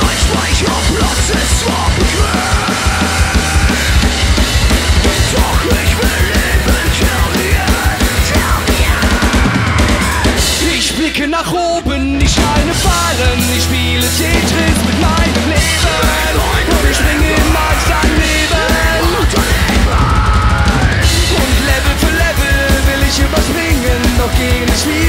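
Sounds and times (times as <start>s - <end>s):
electric guitars: 0.0s - 11.2s, 11.9s - 25.0s
bass guitar: 0.0s - 25.0s
drum kit: 0.0s - 25.0s
shouted vocals: 5.2s - 11.0s, 14.4s - 23.5s.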